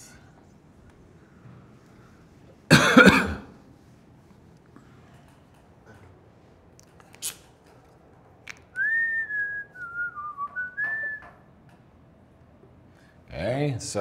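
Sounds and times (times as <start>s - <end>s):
person whistling a tune: 8.7s - 11.4s.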